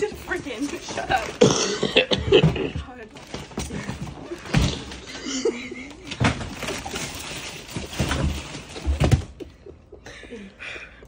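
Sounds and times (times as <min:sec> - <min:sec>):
tape tearing and crinkling: 0:05.9 - 0:09.3.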